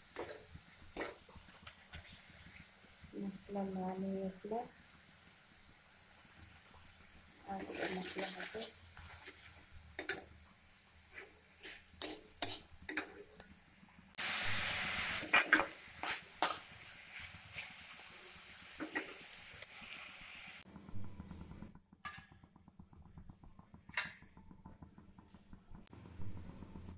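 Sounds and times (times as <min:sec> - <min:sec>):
spices frying in oil: 0:00.0 - 0:22.3
spatula scraping a pan: 0:07.6 - 0:10.2, 0:11.6 - 0:13.1.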